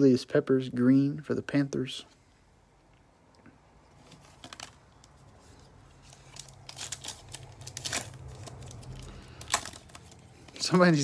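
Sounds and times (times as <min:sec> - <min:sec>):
foil wrapper crackling: 0:04.0 - 0:11.0.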